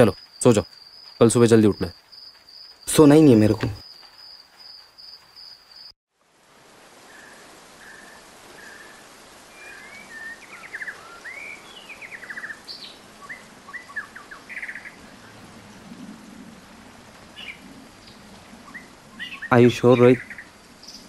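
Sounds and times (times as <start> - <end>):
birds chirping and trilling: 0.0 - 5.9, 7.0 - 21.0
cricket chirring: 0.0 - 6.0, 10.6 - 21.0
light rain hiss: 0.0 - 21.0.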